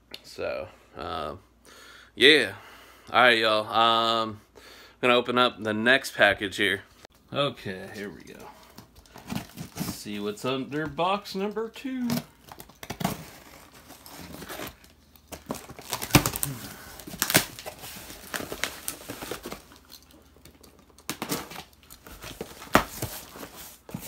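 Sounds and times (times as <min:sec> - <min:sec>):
cardboard flaps tearing open: 0:12.1 - 0:19.8, 0:21.0 - 0:24.0
cardboard snapping: 0:14.6 - 0:19.6.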